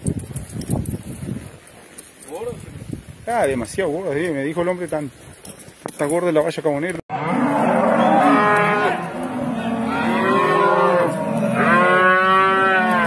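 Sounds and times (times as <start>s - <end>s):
cattle mooing: 7.1s - 13.0s.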